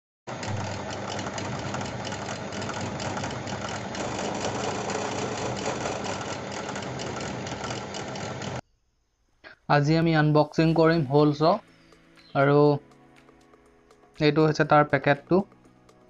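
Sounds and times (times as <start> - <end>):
drill bit grinding metal: 0.3 - 8.6
drill press motor humming: 0.3 - 8.6.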